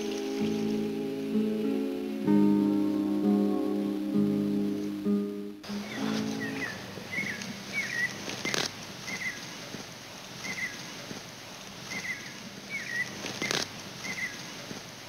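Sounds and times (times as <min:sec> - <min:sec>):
bird calling wavering high note: 0:05.7 - 0:08.2.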